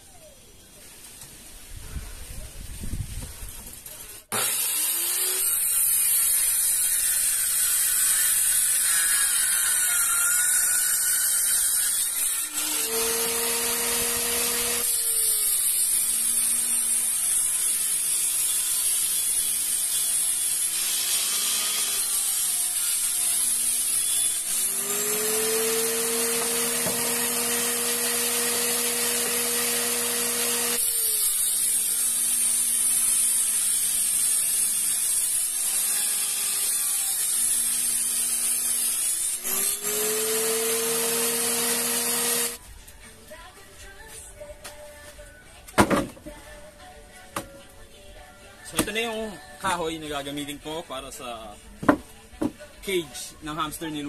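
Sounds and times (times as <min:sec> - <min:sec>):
circular saw cutting plywood: 0:03.9 - 0:42.6
table saw running: 0:04.3 - 0:42.6.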